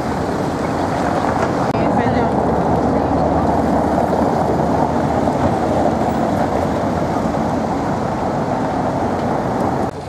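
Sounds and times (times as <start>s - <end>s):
city street traffic rumble: 0.0s - 10.0s.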